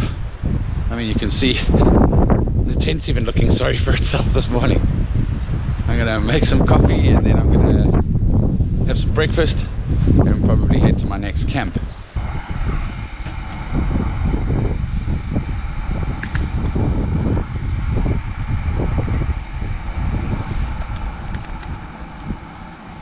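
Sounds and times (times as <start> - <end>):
wind buffeting microphone: 0.0 - 23.0
faint steady hiss: 12.1 - 23.0.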